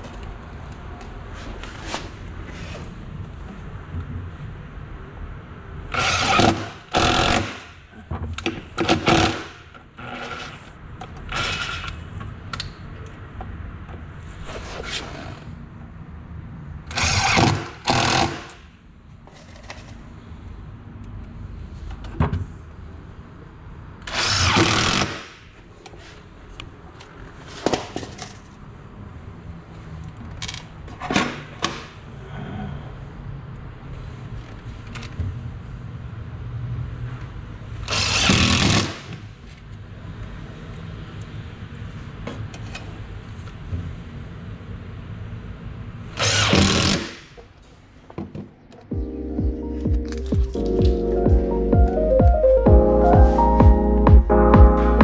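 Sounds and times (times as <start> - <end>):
impact driver driving screws: 6.0 - 7.6, 16.9 - 18.6, 24.1 - 25.3, 46.2 - 47.2.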